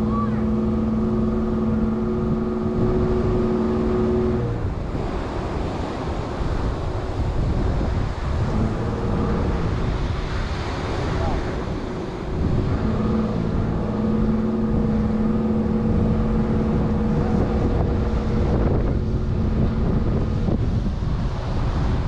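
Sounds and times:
pickup engine driving on sand: 0.0 - 22.0
surf: 0.0 - 22.0
wind on microphone: 0.0 - 22.0.

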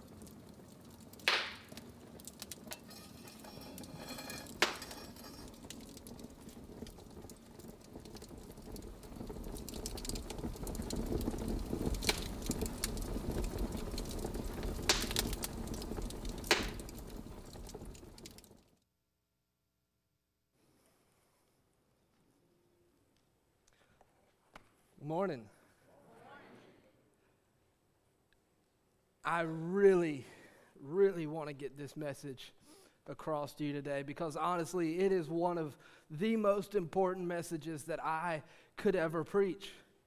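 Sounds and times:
rushing flames: 0.0 - 18.7
wood fire crackling and popping: 0.0 - 18.8.

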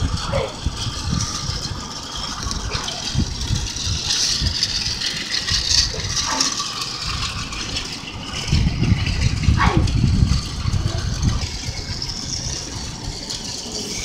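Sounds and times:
toy train running on track: 0.0 - 14.0.

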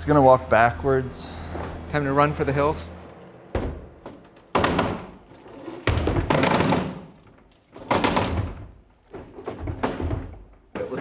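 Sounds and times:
wooden robot heavy thunks: 3.5 - 10.5.

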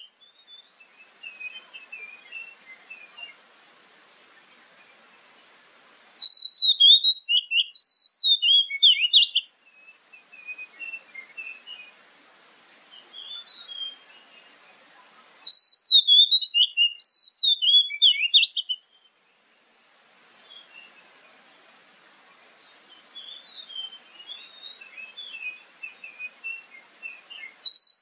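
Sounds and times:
bird singing whistled notes: 0.0 - 3.4, 6.2 - 14.6, 15.4 - 19.5, 20.4 - 21.7, 22.6 - 28.0
bird twittering: 6.2 - 11.9, 15.5 - 19.1, 23.2 - 28.0.

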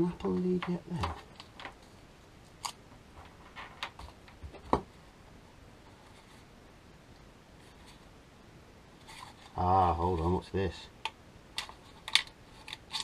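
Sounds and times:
plastic controller clicks and rustles: 11.0 - 13.0.

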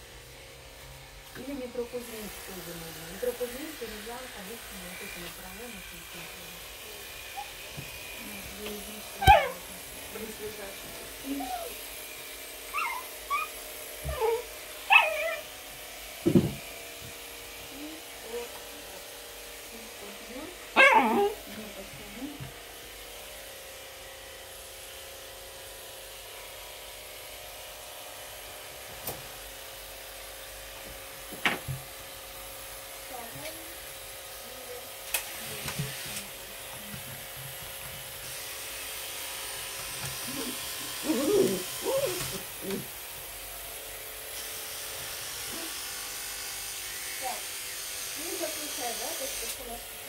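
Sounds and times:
brush rubbing through dog fur: 2.0 - 15.4, 35.3 - 47.5
puppy whining and yelping: 7.3 - 7.6, 9.2 - 9.6, 11.3 - 11.8, 12.7 - 15.5, 20.8 - 21.4, 40.2 - 43.0.

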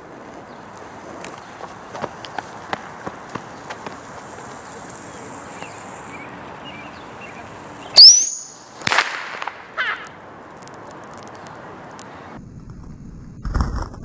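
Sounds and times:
bottle rocket whoosh and whistle: 8.0 - 9.4.

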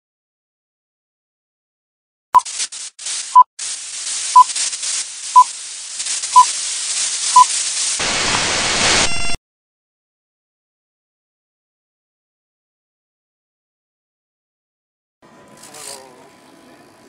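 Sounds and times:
burst of static: 2.4 - 9.4
crackling film hiss: 2.4 - 9.4
short high beeps: 9.0 - 9.4.

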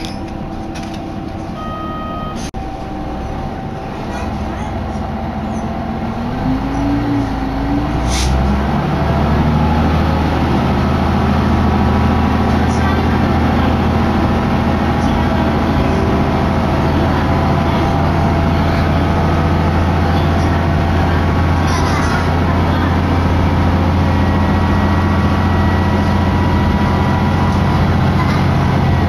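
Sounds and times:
diesel railcar engine revving: 0.0 - 29.0
rising whine: 22.8 - 29.0.

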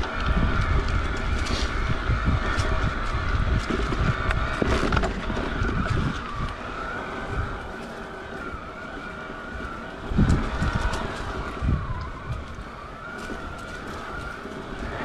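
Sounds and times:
bike tyres rumbling on dirt: 0.0 - 15.0
electric motor whine: 0.0 - 15.0
wind buffeting microphone: 0.0 - 15.0.

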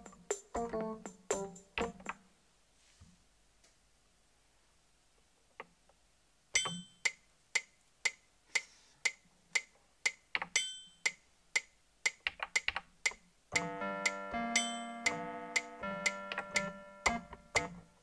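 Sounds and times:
keyboard chords: 0.0 - 2.1, 13.5 - 18.0
keyboard drum pattern: 0.0 - 2.2, 13.5 - 18.0.

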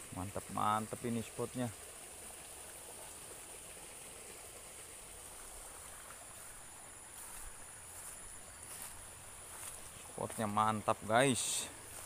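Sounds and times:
small stream flowing: 0.0 - 12.0.

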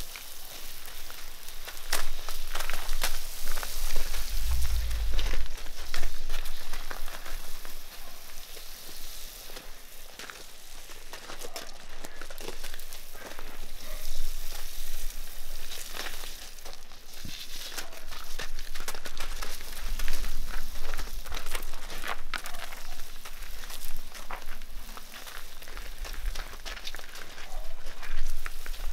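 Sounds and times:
hose spraying water: 0.0 - 10.8
hooves crunching on gravel: 0.0 - 28.9.

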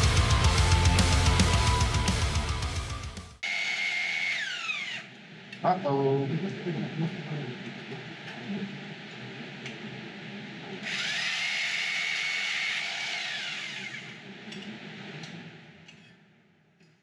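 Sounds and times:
electric saw cutting metal tube: 3.4 - 5.2, 10.8 - 14.7.

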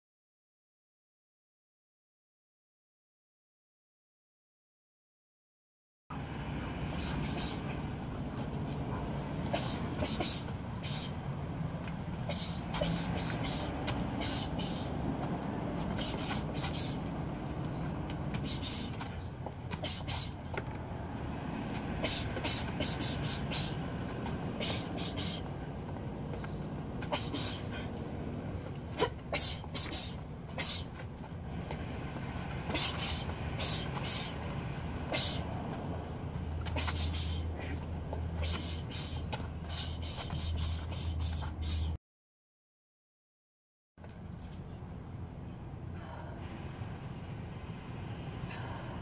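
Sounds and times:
sharp hissing exhales: 6.9 - 7.8, 9.5 - 11.2, 12.3 - 14.9, 27.1 - 27.9.

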